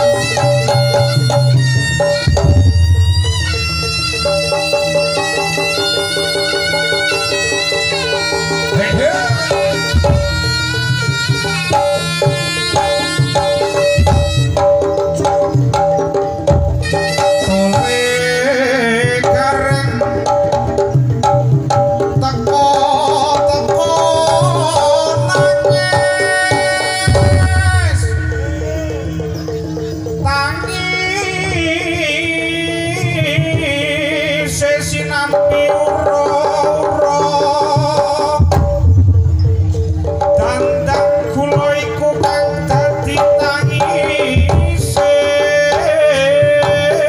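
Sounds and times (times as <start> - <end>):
reedy wavering melody: 0.0 - 19.0
drums playing busy rhythm: 0.0 - 47.0.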